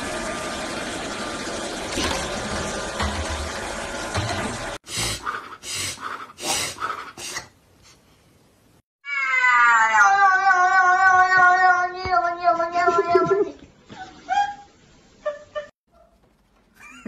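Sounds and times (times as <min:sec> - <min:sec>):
cat yowling: 0:09.0 - 0:13.5.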